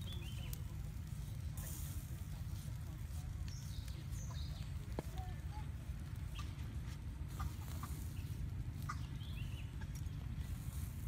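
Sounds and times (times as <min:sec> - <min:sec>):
steady low rumble: 0:00.0 - 0:11.0
chickens clucking: 0:07.3 - 0:10.4.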